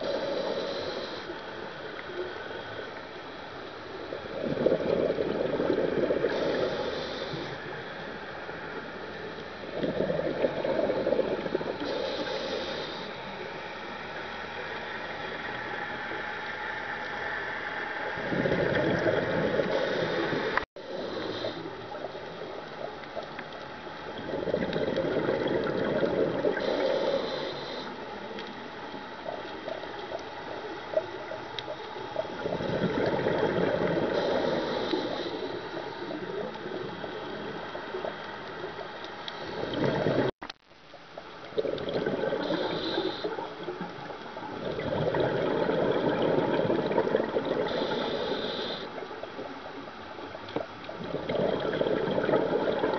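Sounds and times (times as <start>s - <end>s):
regulator inhale hiss: 0.0s - 2.9s, 6.1s - 8.4s, 11.7s - 16.6s, 19.5s - 22.2s, 26.5s - 28.3s, 33.9s - 38.0s, 42.4s - 43.8s, 47.6s - 49.2s
exhaled bubbles rushing: 4.2s - 6.6s, 9.7s - 11.9s, 18.2s - 20.6s, 24.1s - 26.8s, 32.2s - 34.6s, 39.4s - 40.3s, 41.5s - 48.0s, 50.9s - 52.9s.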